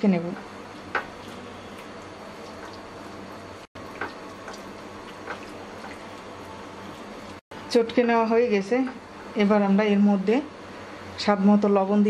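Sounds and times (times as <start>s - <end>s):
hands mashing soft eggplant: 0.2s - 7.4s.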